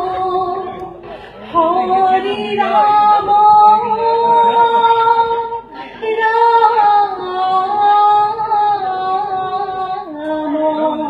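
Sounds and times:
voices singing devotional chant: 0.0 - 11.0.

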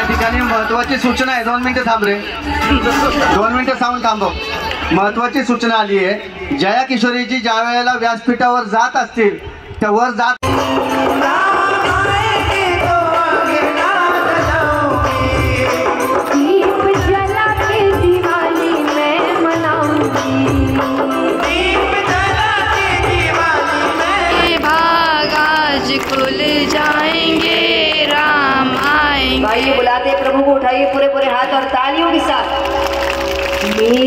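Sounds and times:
steady drum beat: 10.4 - 29.9
person singing devotional song: 10.7 - 30.9.

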